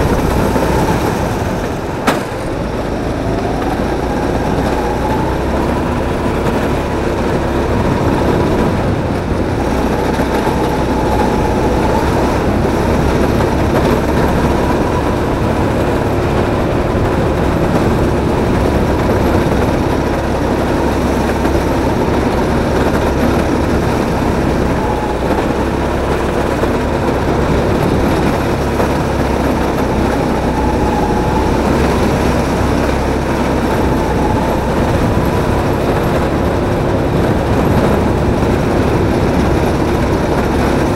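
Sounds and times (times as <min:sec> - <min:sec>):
faint whine: 0:00.0 - 0:40.9
kart rumbling at speed: 0:00.0 - 0:40.9.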